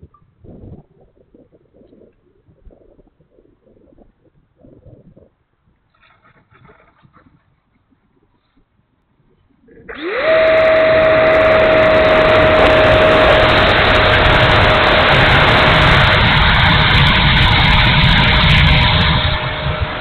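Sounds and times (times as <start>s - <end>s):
wind rumble on microphone: 0.0s - 20.0s
electric ducted fan whine: 9.9s - 20.0s
rush of air: 9.9s - 20.0s.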